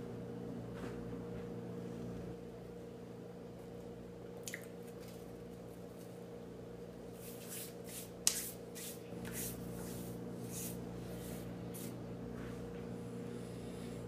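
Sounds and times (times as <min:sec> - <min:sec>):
steady low hum: 0:00.0 - 0:14.0
hands brushing together: 0:07.2 - 0:12.6.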